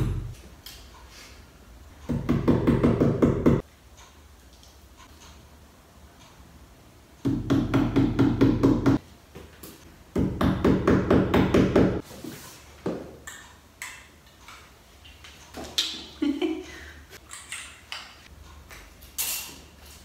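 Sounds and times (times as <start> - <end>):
hammer tapping nails: 2.1 - 3.6, 7.2 - 9.0, 10.2 - 12.0.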